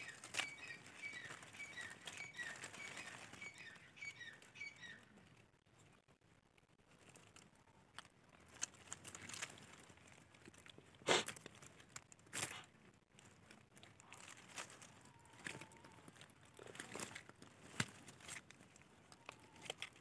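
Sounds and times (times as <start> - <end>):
leaf litter crunches: 0.0 - 3.8, 8.4 - 20.0
dry leaves rustling under hand: 0.0 - 4.7, 6.9 - 20.0.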